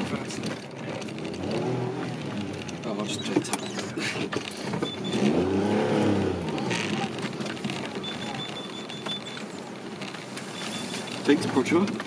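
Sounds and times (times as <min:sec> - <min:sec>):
car engine revving: 0:00.0 - 0:11.7
parking sensor beeps: 0:03.0 - 0:03.9, 0:04.5 - 0:06.6, 0:07.6 - 0:11.7.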